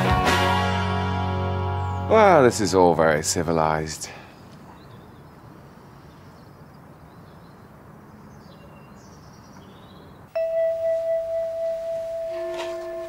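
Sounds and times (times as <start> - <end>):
outdoor background noise: 0.0 - 13.0
loud steady ringing tone: 10.3 - 13.0.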